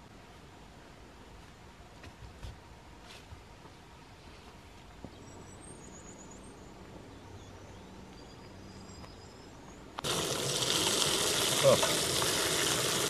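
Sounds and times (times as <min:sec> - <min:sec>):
faint birdsong chirps and trills: 0:03.2 - 0:10.0.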